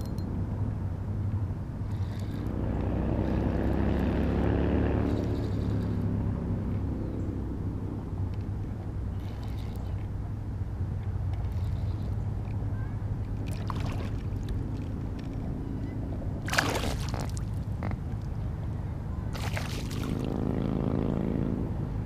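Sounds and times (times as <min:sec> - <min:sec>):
fish splashing at water surface: 0:13.4 - 0:14.6, 0:16.4 - 0:17.6, 0:19.3 - 0:20.4.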